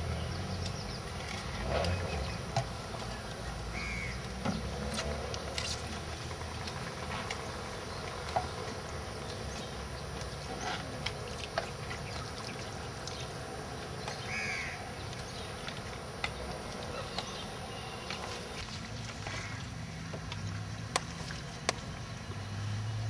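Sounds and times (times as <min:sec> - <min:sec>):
outdoor background noise: 0:00.0 - 0:23.0
bird call: 0:16.8 - 0:18.6.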